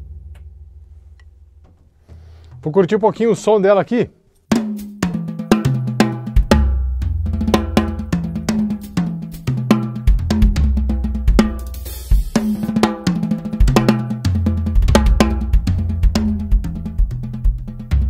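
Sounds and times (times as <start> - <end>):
drum kit groove: 4.4 - 18.0.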